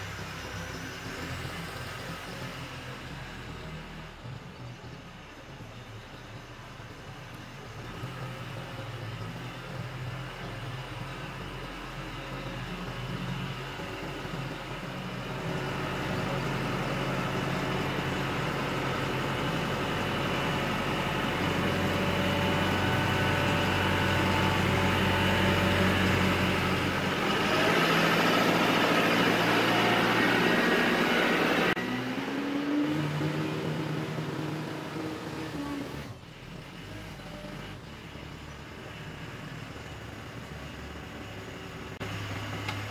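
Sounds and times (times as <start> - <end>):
tractor engine running: 0.0 - 42.9.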